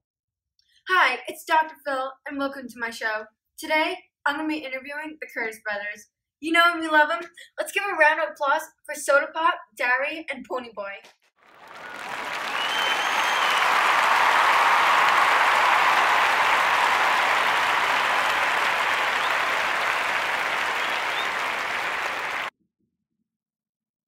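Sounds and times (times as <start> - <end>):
crowd applauding: 11.4 - 22.5.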